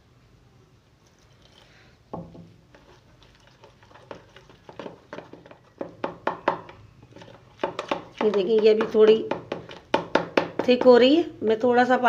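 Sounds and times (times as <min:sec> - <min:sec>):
spoon stirring batter: 0:01.0 - 0:11.3
knock: 0:05.8 - 0:06.8.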